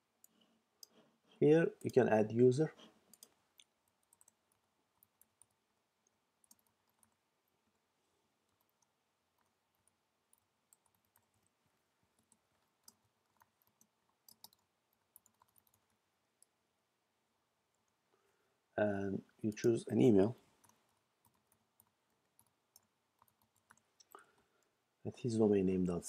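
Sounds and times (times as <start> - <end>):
keyboard typing clicks: 6.4 - 7.2, 12.2 - 16.5.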